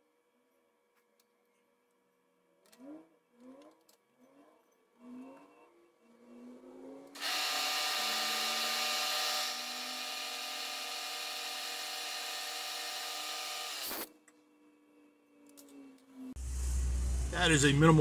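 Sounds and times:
end mill cutting metal: 7.2 - 14.1
milling machine spindle whine: 7.2 - 14.1.

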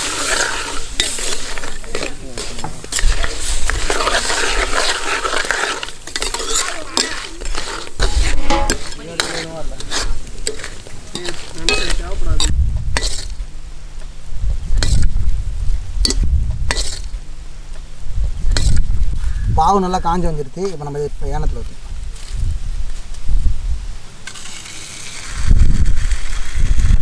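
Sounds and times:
ladle scraping a pot: 0.0 - 13.4.

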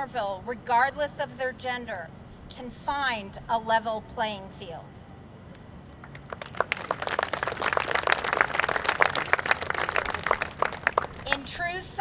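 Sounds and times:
audience applauding: 6.0 - 11.3.

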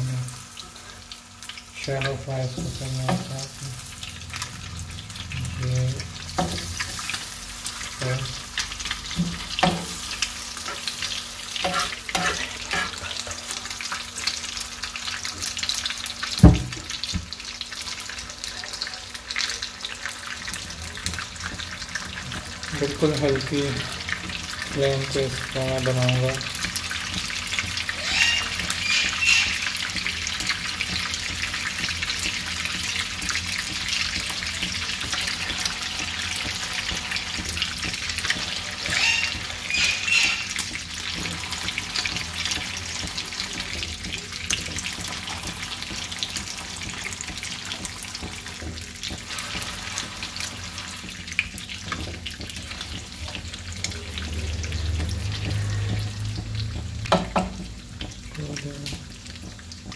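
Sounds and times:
oil sizzling and crackling: 0.0 - 59.9
metal spatula scraping a pan: 10.6 - 13.5, 35.0 - 43.4.

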